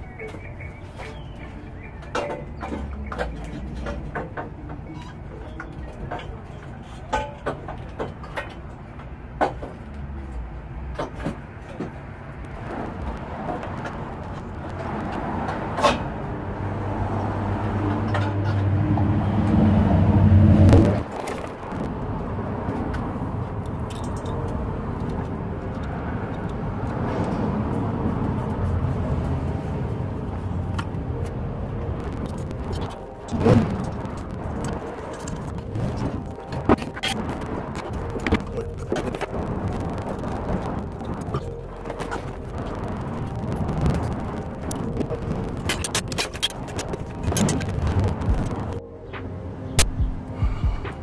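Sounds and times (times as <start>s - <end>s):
vehicle engine hum: 0.0s - 51.0s.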